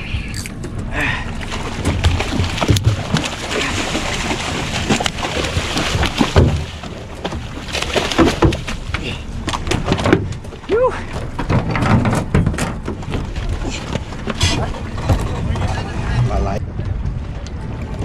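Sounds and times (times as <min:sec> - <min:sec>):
fish thrashing and splashing: 0:01.4 - 0:11.7.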